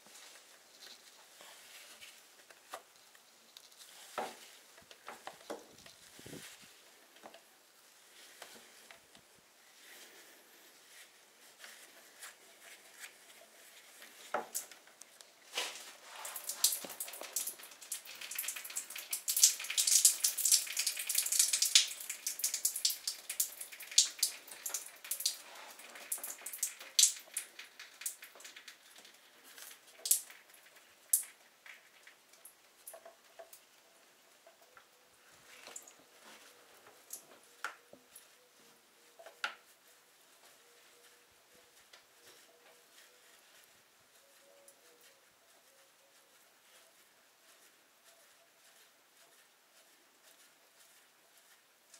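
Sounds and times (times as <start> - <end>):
knocks and rustles: 3.6 - 7.4.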